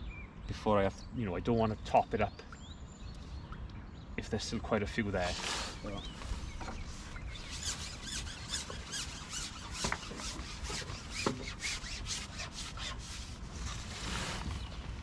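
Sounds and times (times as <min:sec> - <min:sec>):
fishing pole sections sliding: 0:05.2 - 0:15.0.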